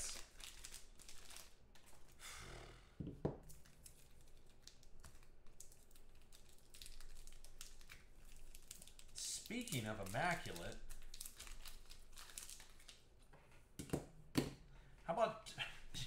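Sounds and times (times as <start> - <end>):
foil wrapper crinkling: 0.0 - 2.2, 3.5 - 13.1.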